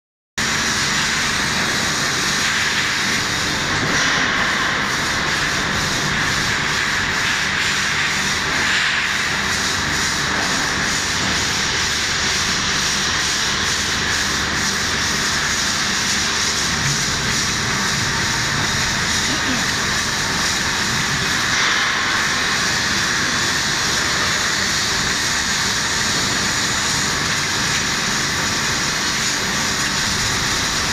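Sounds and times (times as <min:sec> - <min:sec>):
water jet spraying on steel: 0:00.4 - 0:30.9
machinery hissing roar: 0:16.5 - 0:27.6.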